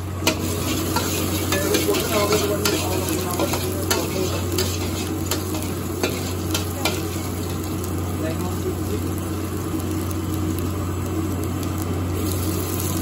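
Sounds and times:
garlic sizzling in hot oil: 0.0s - 13.0s
metal spatula scraping a wok: 0.2s - 7.6s.

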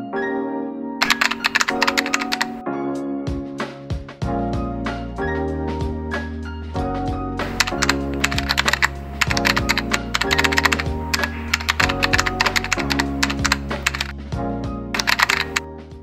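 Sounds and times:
lo-fi background music: 0.0s - 16.0s
fast typing on laptop keyboard: 1.0s - 2.6s, 7.4s - 14.1s, 15.0s - 15.6s.

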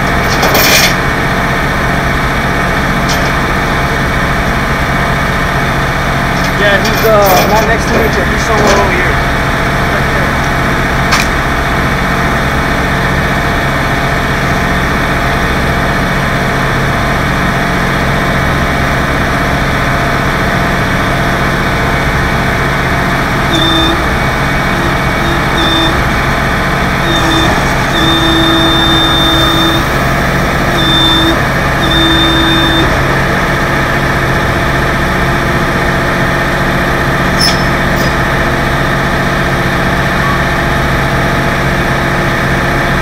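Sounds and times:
high whine: 0.0s - 17.2s, 19.0s - 43.0s
truck engine idling: 0.0s - 43.0s
sharp click: 11.1s - 11.3s.

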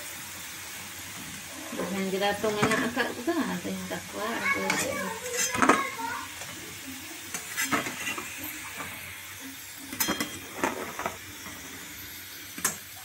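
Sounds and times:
food sizzling in hot oil: 0.0s - 13.0s
metal spatula scraping pan: 4.3s - 6.0s, 7.3s - 9.0s.

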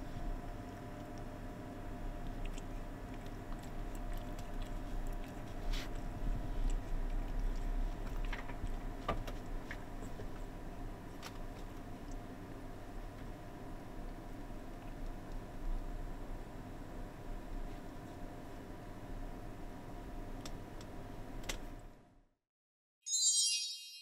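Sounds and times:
cat sniffing and snuffling: 2.1s - 10.5s.

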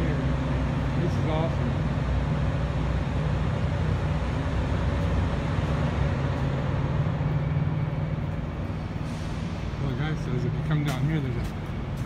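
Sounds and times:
low machine drone: 0.0s - 12.0s.

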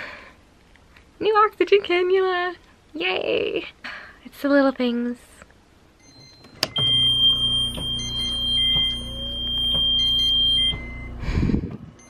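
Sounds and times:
electronic alarm high tone: 6.0s - 11.2s
machine low hum: 6.0s - 12.0s.

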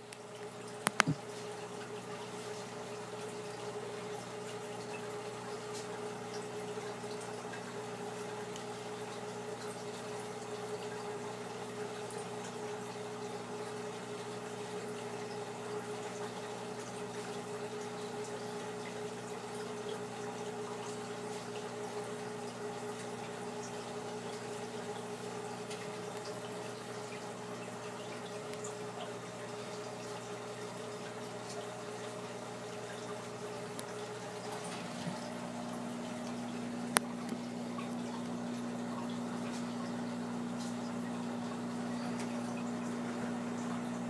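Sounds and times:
aquarium filter humming: 0.0s - 44.0s
water trickling and bubbling: 0.0s - 44.0s
faint ticks: 0.1s - 1.2s.

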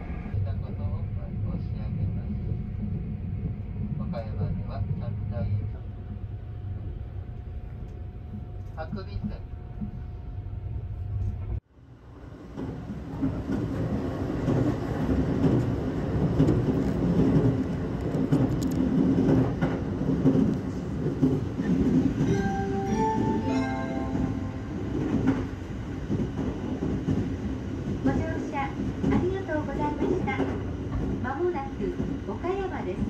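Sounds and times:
train wheels rumbling on rail: 0.0s - 33.0s.

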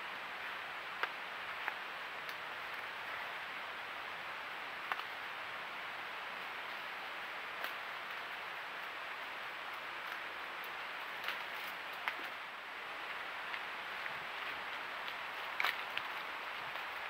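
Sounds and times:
steady hiss: 0.0s - 17.0s
animals stepping in dry leaves: 7.4s - 17.0s.

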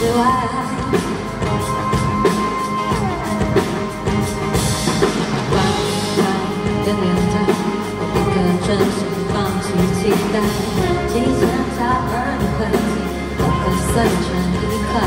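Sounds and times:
drums keeping a beat: 0.0s - 15.0s
guitars playing: 0.0s - 15.0s.

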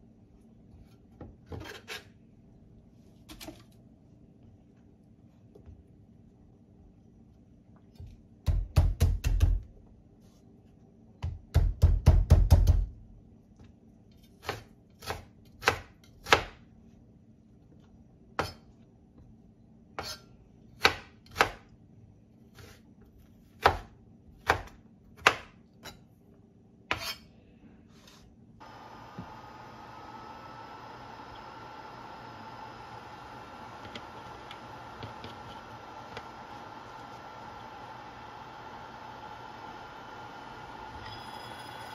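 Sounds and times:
knife chopping on cutting board: 14.4s - 16.6s, 20.8s - 21.7s, 23.6s - 25.6s, 26.9s - 27.2s.

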